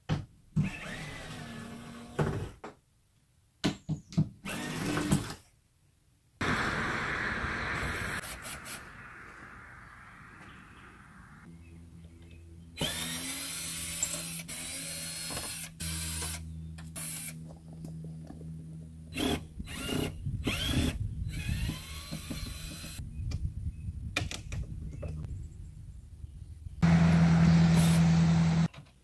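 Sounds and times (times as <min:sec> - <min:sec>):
cordless drill on screws: 0:00.6 - 0:02.2, 0:04.4 - 0:05.4, 0:12.8 - 0:16.4, 0:19.1 - 0:23.0.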